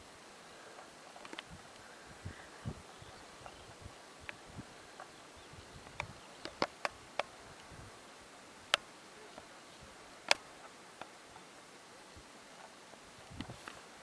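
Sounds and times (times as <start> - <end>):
faint steady hiss: 0.0 - 14.0
sharp clicks: 1.2 - 1.9, 5.8 - 7.7.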